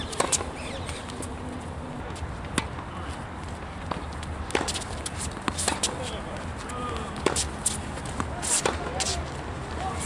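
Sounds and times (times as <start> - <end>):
tennis ball bouncing on hard court: 0.0 - 0.8, 3.9 - 6.0, 7.2 - 9.1
tennis ball hit by rackets: 3.9 - 6.0, 7.2 - 9.2.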